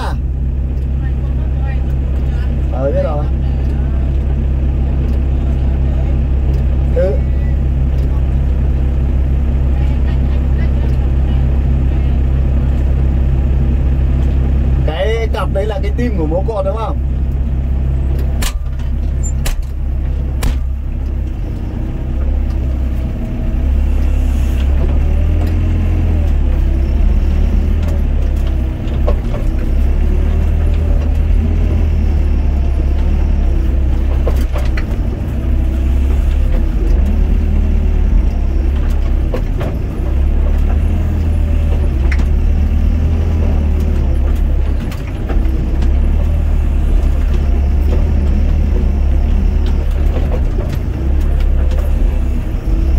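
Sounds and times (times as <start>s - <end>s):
diesel engine running: 0.0s - 52.9s.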